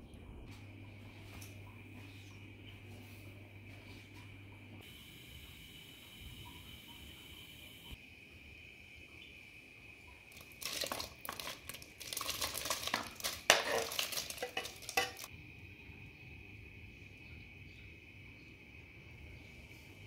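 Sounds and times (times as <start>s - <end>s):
fruit pieces plopping in water: 10.3s - 15.3s
knife scraping metal bowl: 13.2s - 15.3s.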